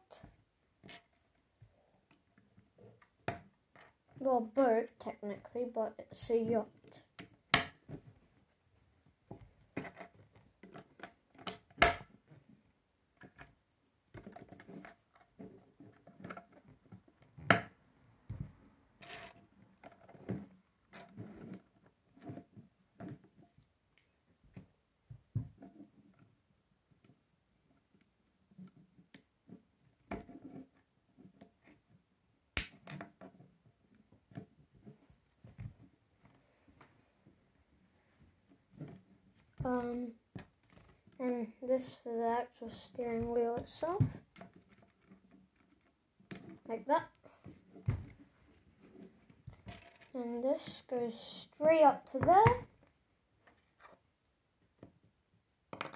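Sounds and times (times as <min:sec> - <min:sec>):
plastic pieces snapping together: 0:32.6 - 0:32.9.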